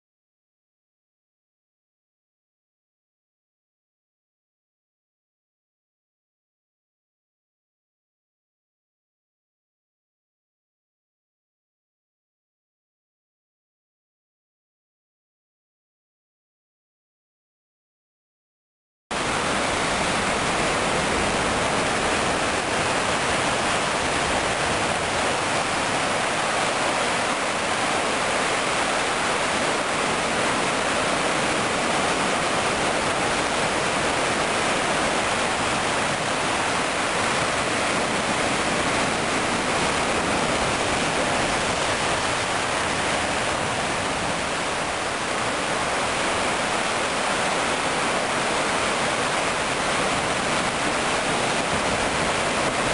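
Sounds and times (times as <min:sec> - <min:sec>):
surf roaring on rocks: 0:19.1 - 0:52.9.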